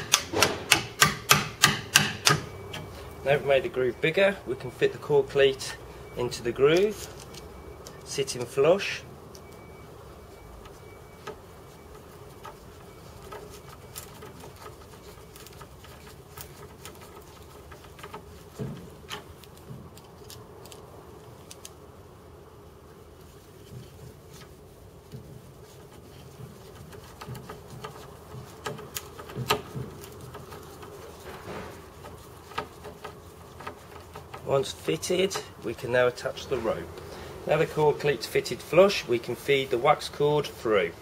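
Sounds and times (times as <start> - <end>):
screwdriver clicks and creaks: 13.2 - 21.8, 26.1 - 35.7.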